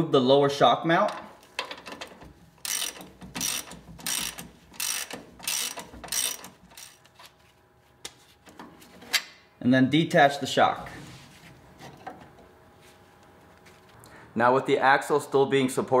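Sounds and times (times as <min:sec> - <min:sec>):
socket ratchet clicking: 0:01.9 - 0:07.1.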